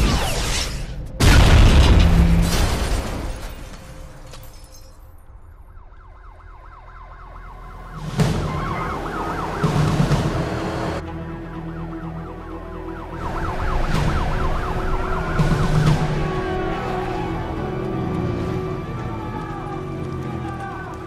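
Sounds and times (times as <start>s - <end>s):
police sirens wailing: 5.4s - 21.0s.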